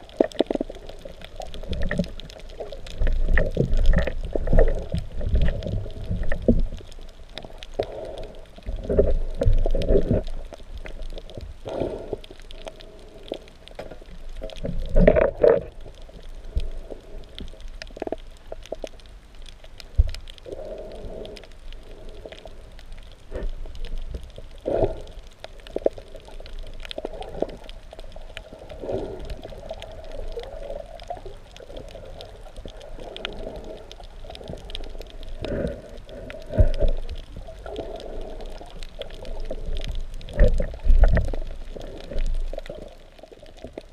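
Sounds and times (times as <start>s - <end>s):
water gurgling underwater: 0.0s - 12.8s, 13.8s - 17.2s, 22.8s - 43.9s.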